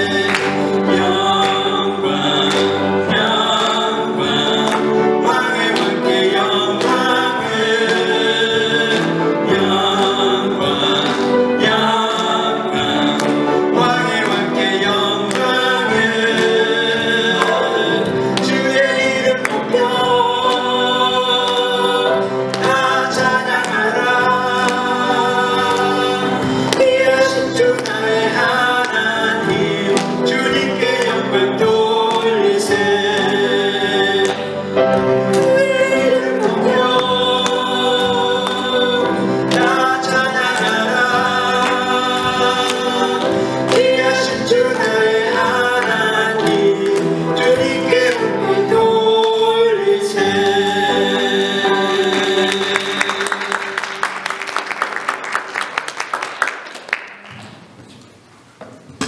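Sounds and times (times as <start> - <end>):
man and woman singing duet: 0.0 - 54.1
musical accompaniment: 0.0 - 59.0
applause: 0.2 - 2.8, 52.1 - 57.7.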